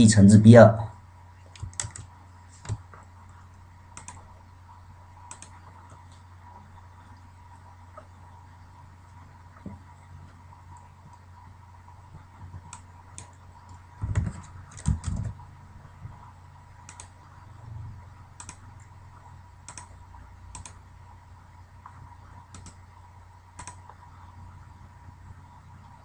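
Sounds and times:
low electrical hum: 0:00.0 - 0:26.0
computer keyboard typing: 0:01.5 - 0:03.1, 0:04.0 - 0:04.3, 0:05.2 - 0:06.1, 0:12.4 - 0:15.4, 0:16.8 - 0:17.2, 0:18.4 - 0:18.7, 0:19.6 - 0:20.8, 0:22.5 - 0:22.8, 0:23.6 - 0:24.0.

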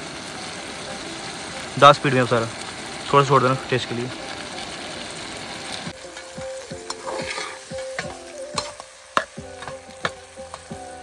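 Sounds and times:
light sizzle of frying: 0:00.0 - 0:11.0
metal spoon scraping a pan: 0:06.0 - 0:10.8
spoon clicking on pan: 0:06.9 - 0:10.8.

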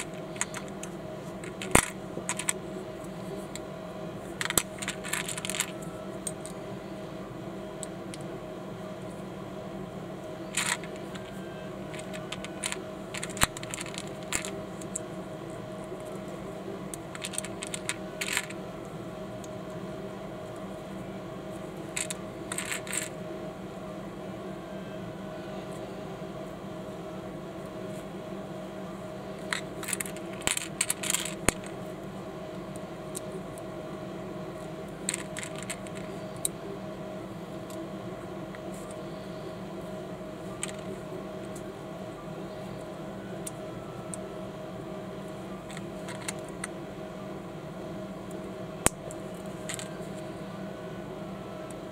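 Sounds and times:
plastic bricks clicking together: 0:00.0 - 0:00.7, 0:01.4 - 0:02.6, 0:04.4 - 0:05.8, 0:10.6 - 0:15.0, 0:17.1 - 0:18.6, 0:22.0 - 0:23.1, 0:29.4 - 0:31.7, 0:35.1 - 0:36.1
steady low hum: 0:00.0 - 0:51.9.

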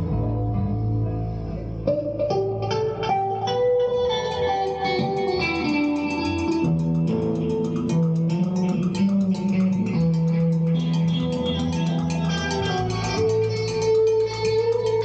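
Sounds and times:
bass guitar: 0:00.0 - 0:15.0
electric guitar picking notes: 0:00.0 - 0:15.0
drums with cymbal beat: 0:05.1 - 0:15.0.

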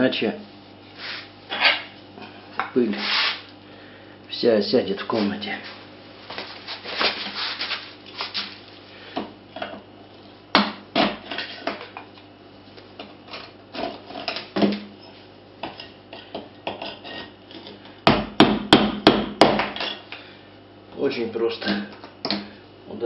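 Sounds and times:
hammer striking chisel: 0:18.1 - 0:19.9.

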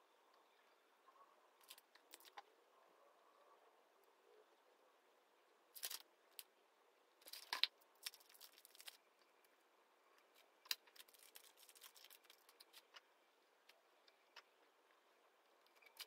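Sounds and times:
sticky tabs crinkling and clicking: 0:10.6 - 0:13.0.

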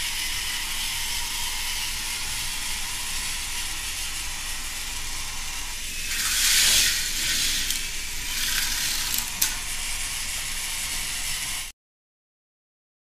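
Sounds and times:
toy roller coaster rattling: 0:05.1 - 0:11.6.

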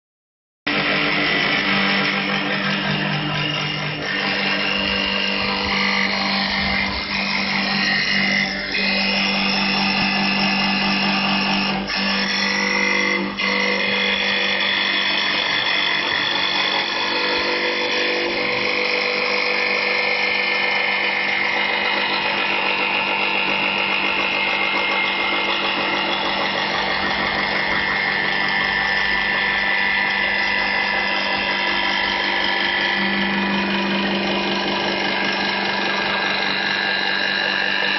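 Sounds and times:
low hum: 0:00.7 - 0:12.0
lathe machine whine: 0:00.7 - 0:37.9.

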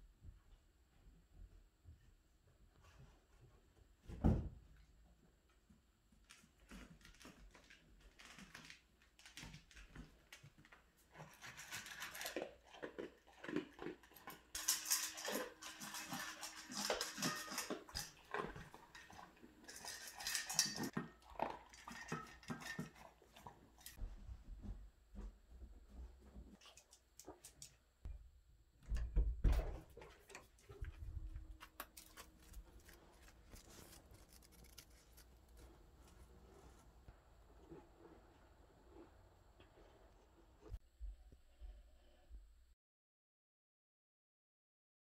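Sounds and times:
dog chewing: 0:11.1 - 0:24.0
metal bowl clinking and scraping: 0:11.2 - 0:24.0.

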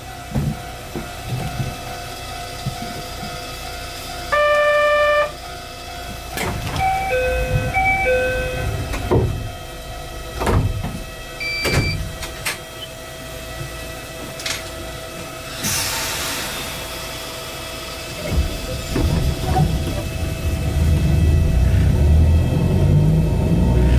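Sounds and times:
high beep: 0:06.8 - 0:08.7, 0:11.4 - 0:12.0.

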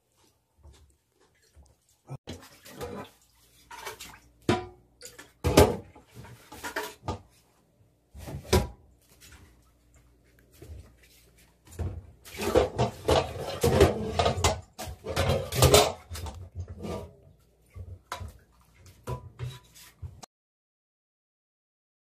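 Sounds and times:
dishes clattering in a steel sink: 0:02.3 - 0:07.4, 0:11.7 - 0:20.3.

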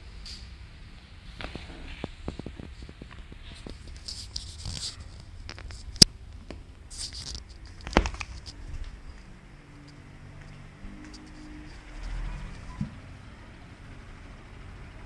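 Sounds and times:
plastic object handling rustle: 0:01.4 - 0:06.0, 0:06.9 - 0:09.2.

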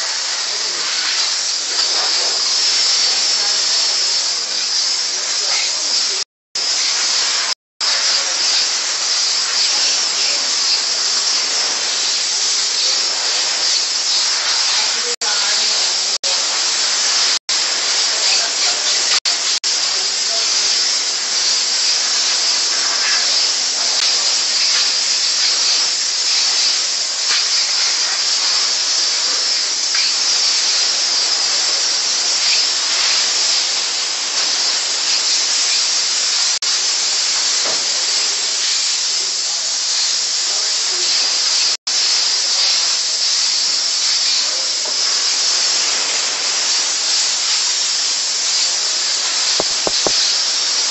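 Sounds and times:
steam hose hissing: 0:00.0 - 0:50.9.

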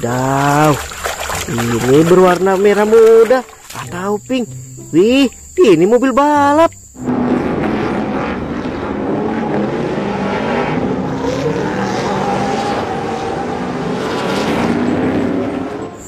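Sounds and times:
race truck engines revving: 0:07.0 - 0:16.0.

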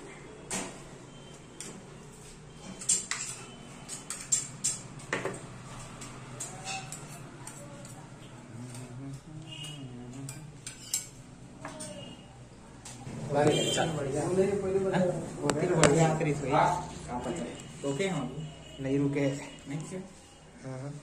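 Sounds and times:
spoon clinking on steel plates: 0:02.6 - 0:08.0, 0:09.6 - 0:12.2.

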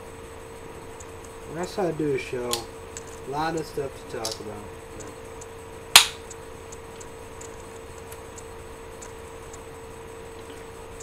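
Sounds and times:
steady hum: 0:00.0 - 0:11.0
faint irregular ticking: 0:00.4 - 0:11.0
sharp crack: 0:05.9 - 0:06.4.

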